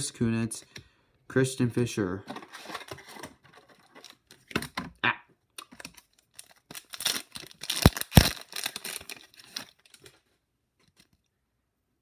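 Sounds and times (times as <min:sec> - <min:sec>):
foil wrapper tearing and crinkling: 0:05.8 - 0:10.1.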